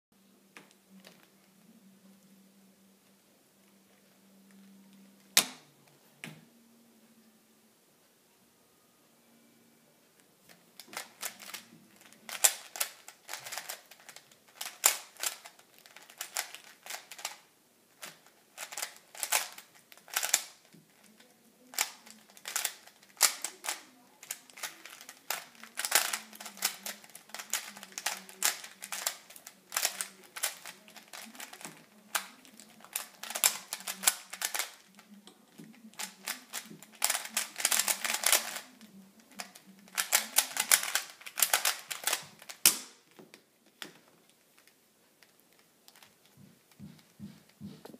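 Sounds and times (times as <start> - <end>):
puzzle cube clacking: 10.5 - 47.6.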